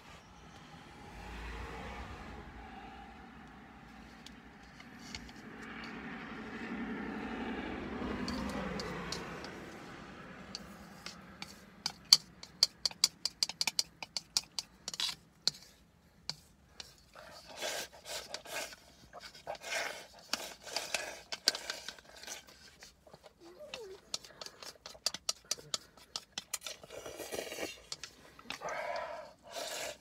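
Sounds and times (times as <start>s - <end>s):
chopsticks clicking against bowl: 10.5s - 15.6s, 23.7s - 26.8s
slurping from bowl: 17.1s - 30.0s.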